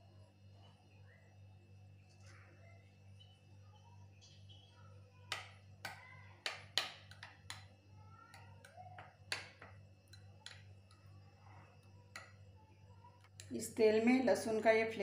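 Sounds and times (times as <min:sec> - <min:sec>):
spoon clinking against glass bowl: 0:08.6 - 0:11.1.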